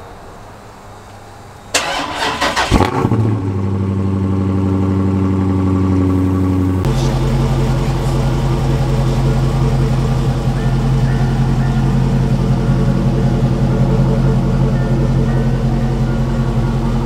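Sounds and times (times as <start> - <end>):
engine idling: 0.0 - 17.0
engine cranking: 1.7 - 3.4.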